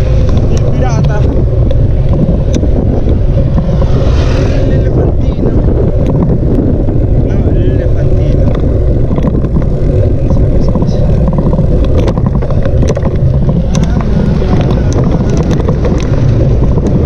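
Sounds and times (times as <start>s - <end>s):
road sounds: 0.0s - 17.0s
wind buffeting microphone: 0.0s - 17.0s.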